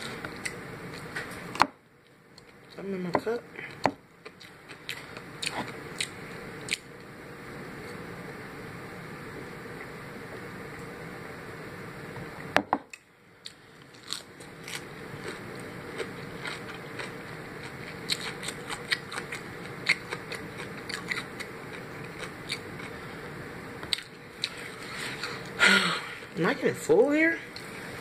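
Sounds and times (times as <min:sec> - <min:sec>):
steady background hum: 0:00.0 - 0:28.0
chewing crispy food: 0:13.5 - 0:23.1.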